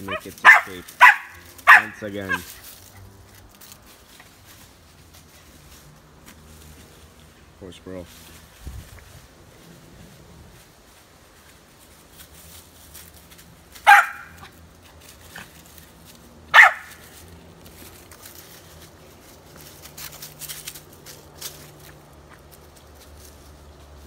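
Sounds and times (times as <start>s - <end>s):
dog barking: 0.1s - 2.5s, 13.8s - 14.5s, 16.5s - 17.0s.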